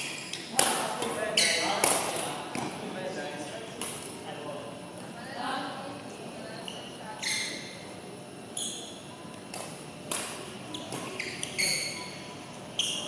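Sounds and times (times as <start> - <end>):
sneakers squeaking on court: 1.2 - 2.1, 6.6 - 7.8, 8.5 - 9.1, 10.6 - 13.0.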